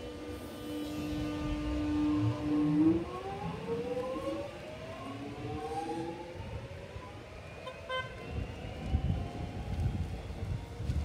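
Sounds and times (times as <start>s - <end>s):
electric train motors whining: 0.0s - 6.7s.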